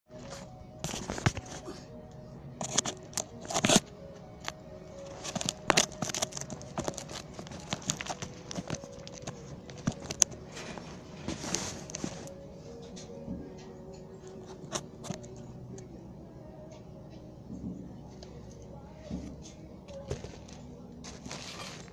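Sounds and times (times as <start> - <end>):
faint steady hum: 0.1 - 21.9
rustling: 5.0 - 12.9, 19.9 - 21.9.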